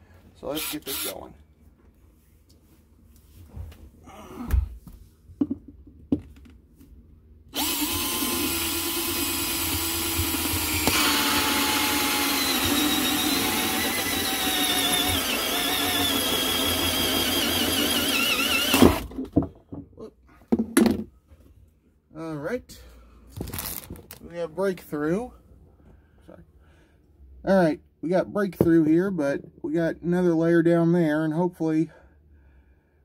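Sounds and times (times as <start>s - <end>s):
cordless drill whining: 0.6s - 1.2s, 7.5s - 19.1s.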